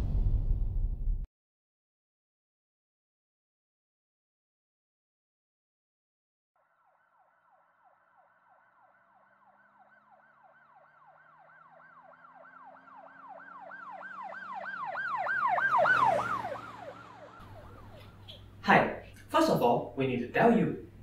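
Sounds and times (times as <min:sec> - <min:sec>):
ambulance siren yelping: 0:06.8 - 0:18.6.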